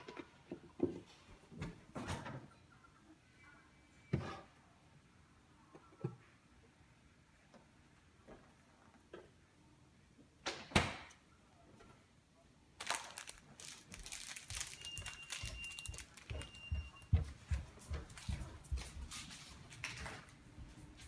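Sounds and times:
bare footsteps on floor: 15.5s - 21.0s.

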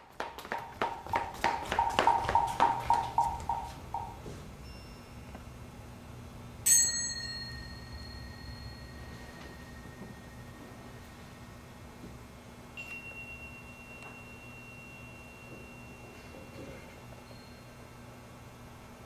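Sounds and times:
wooden block struck: 0.8s - 4.2s
small bell ringing: 2.1s - 5.3s, 6.6s - 10.0s, 12.8s - 17.8s.

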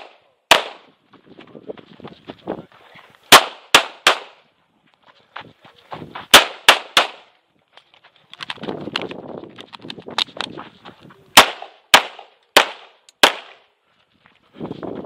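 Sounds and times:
pistol shots: 0.0s - 0.9s, 3.3s - 4.4s, 6.3s - 7.3s, 11.4s - 13.6s.

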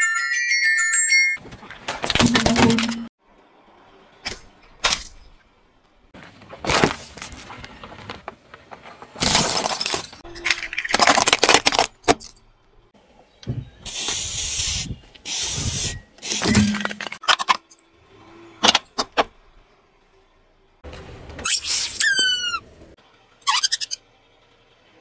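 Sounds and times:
tyre crushing objects: 6.2s - 12.3s
aerosol spray hiss: 13.9s - 15.9s.

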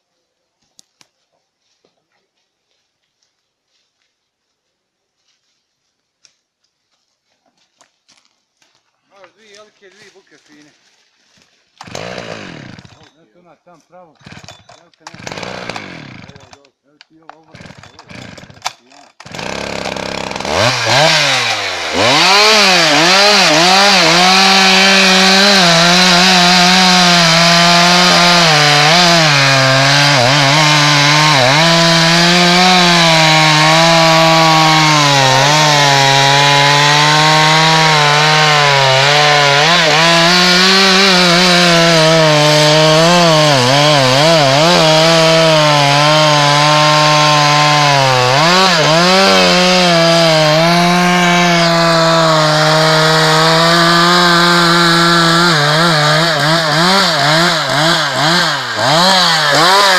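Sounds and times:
chainsaw cutting through wood: 11.8s - 13.4s, 14.0s - 59.9s.

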